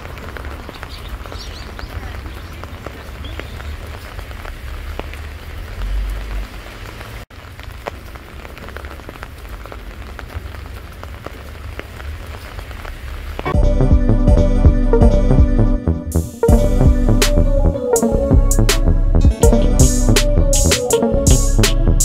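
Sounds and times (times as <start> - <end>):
rain falling on wet pavement: 0.0 - 13.6.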